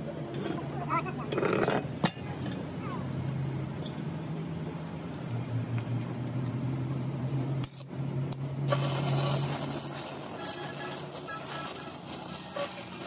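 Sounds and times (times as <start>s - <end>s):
welding arc crackling: 3.8s - 13.0s.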